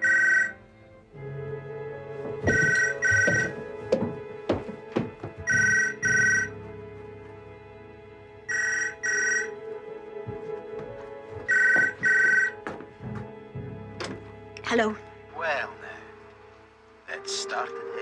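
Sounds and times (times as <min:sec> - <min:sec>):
telephone double ring: 0:00.0 - 0:00.5, 0:05.5 - 0:06.5, 0:11.5 - 0:12.5.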